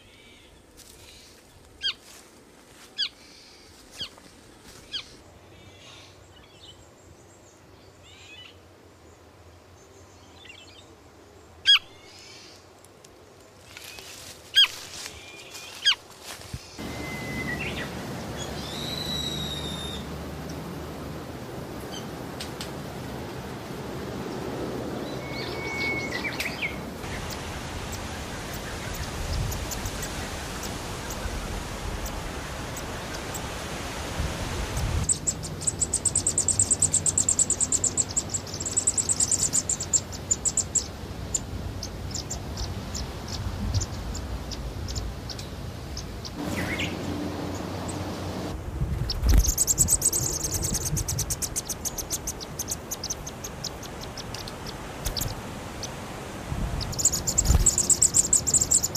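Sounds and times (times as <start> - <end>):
forest ambience: 0.0 - 58.9
nestlings chirping: 16.6 - 20.8, 25.0 - 33.5, 34.7 - 56.0, 56.7 - 58.9.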